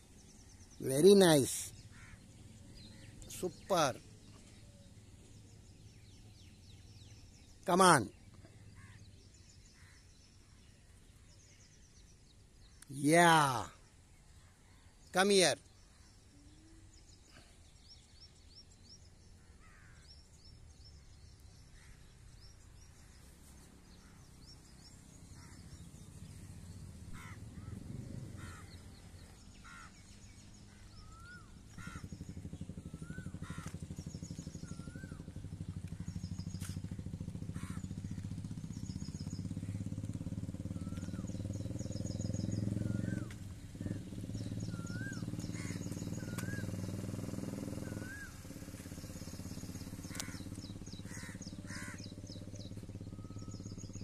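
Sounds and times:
birds chirping: 0:00.0 - 0:54.0
car approaching: 0:16.0 - 0:54.0.

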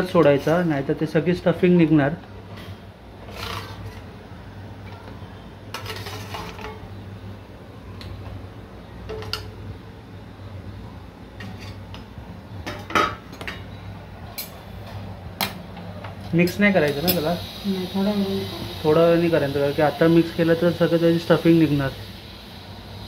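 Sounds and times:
steady low hum: 0:00.0 - 0:20.6
metal ladle scraping metal pot: 0:03.2 - 0:04.1, 0:05.7 - 0:06.8, 0:11.4 - 0:12.0.

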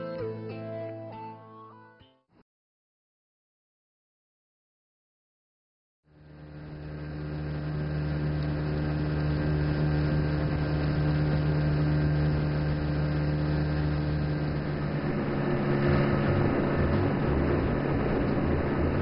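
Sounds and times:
outboard motor humming: 0:06.2 - 0:19.0
water rushing along hull: 0:08.5 - 0:19.0.

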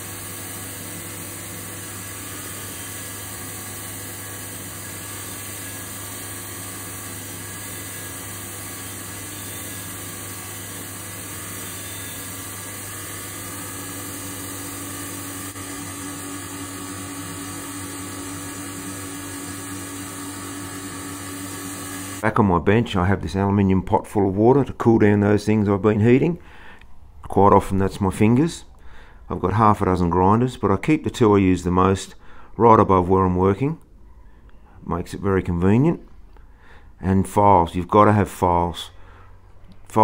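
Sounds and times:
belt sander running: 0:00.0 - 0:22.2
dust extractor drawing air: 0:00.0 - 0:22.2.

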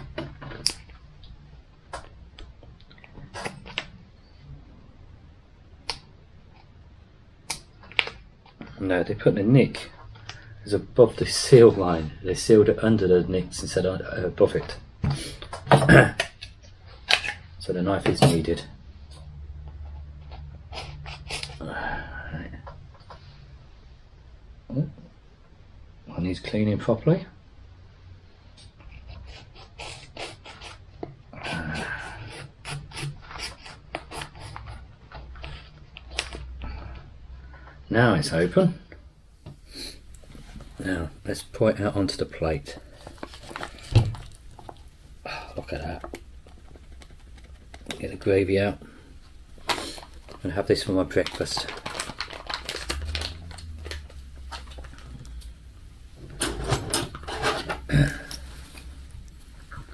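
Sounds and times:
steady low hum: 0:36.6 - 0:59.9
foil pouch crinkling: 0:41.7 - 0:48.8, 0:49.4 - 0:55.7.

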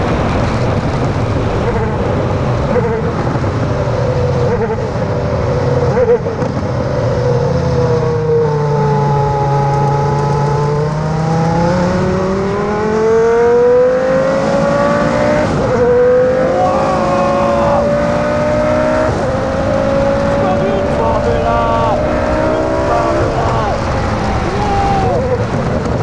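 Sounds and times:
racing car engine accelerating: 0:05.8 - 0:26.0.

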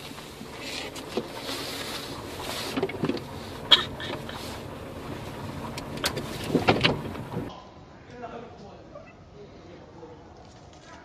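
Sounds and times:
car road and engine noise: 0:00.0 - 0:07.5.

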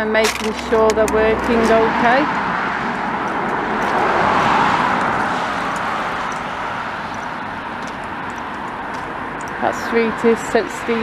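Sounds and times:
car passing: 0:00.0 - 0:11.0.

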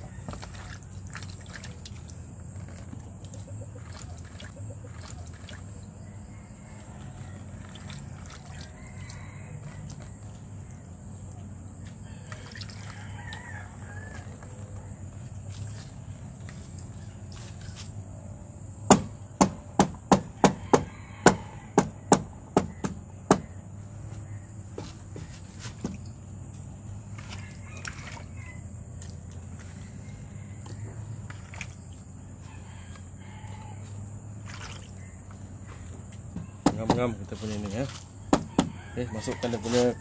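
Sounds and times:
bamboo tube knocking on wood: 0:18.9 - 0:23.5, 0:36.3 - 0:37.2, 0:38.3 - 0:38.8.

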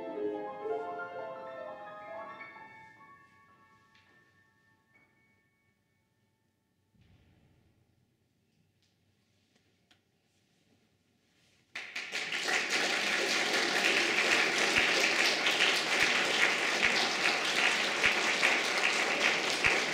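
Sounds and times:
audience applause: 0:11.8 - 0:19.9.

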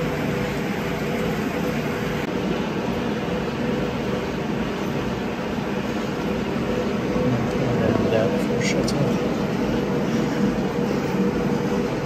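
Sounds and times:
stationary bike whirring: 0:00.0 - 0:12.0.

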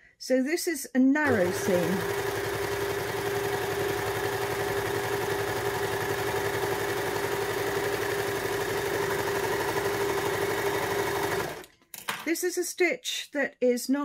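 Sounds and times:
overlocker sewing machine running: 0:01.2 - 0:11.7.

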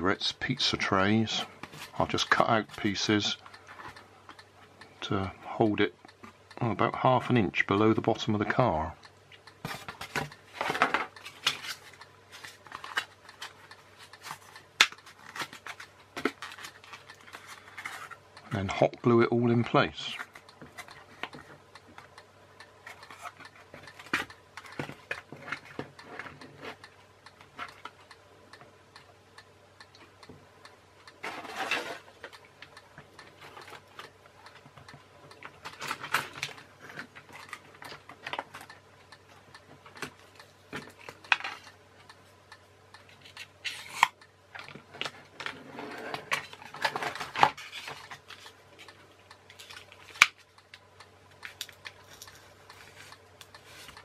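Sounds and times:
steady low hum: 0:00.0 - 0:54.0
plastic parts clicking and tapping: 0:09.4 - 0:18.2, 0:22.8 - 0:28.1, 0:31.1 - 0:38.8, 0:39.6 - 0:41.8, 0:43.0 - 0:54.0
rustling or scraping bursts: 0:45.5 - 0:48.5.

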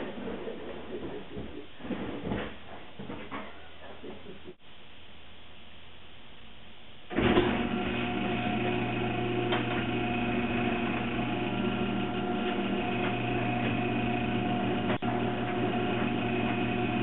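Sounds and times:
garage door opener humming: 0:07.1 - 0:17.0.

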